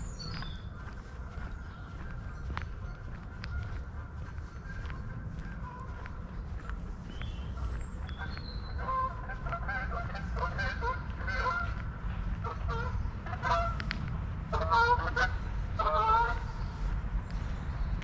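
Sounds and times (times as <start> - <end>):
geese honking: 0.0 - 16.8.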